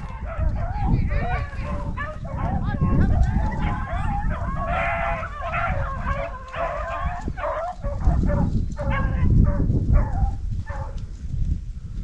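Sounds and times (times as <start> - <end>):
hounds baying: 0.0 - 11.0.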